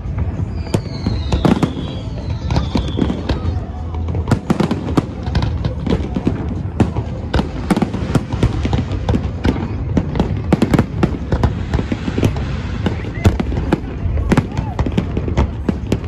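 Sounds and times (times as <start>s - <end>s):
fireworks bursting: 0.0s - 16.0s.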